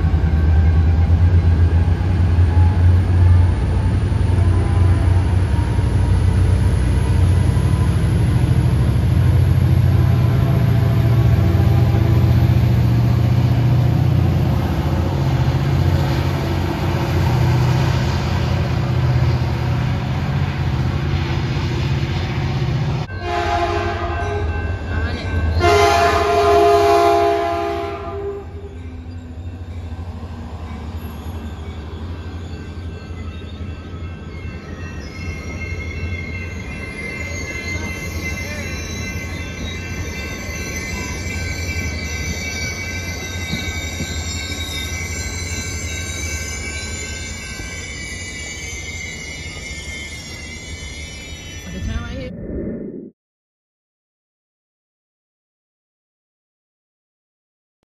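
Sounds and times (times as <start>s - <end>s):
train cars rolling by: 0.0s - 52.0s
diesel locomotive rumbling: 0.0s - 52.5s
train horn blasts: 4.3s - 5.5s, 9.8s - 12.4s, 23.1s - 24.6s, 25.6s - 28.6s.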